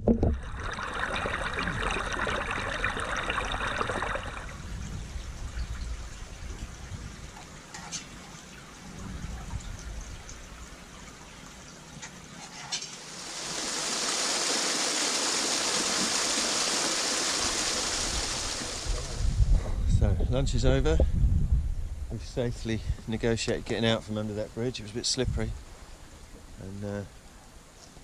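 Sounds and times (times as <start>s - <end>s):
stream water over rocks: 0.0s - 4.7s, 5.9s - 19.3s
small waterfall rushing: 13.0s - 19.3s.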